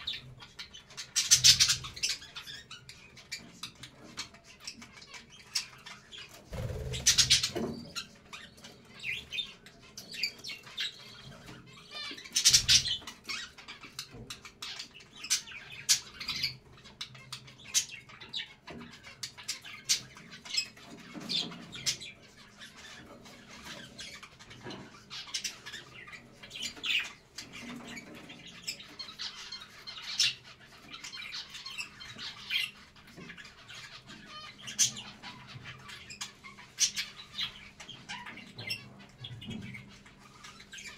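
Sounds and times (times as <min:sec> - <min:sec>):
budgerigars chattering: 0:00.0 - 0:40.9.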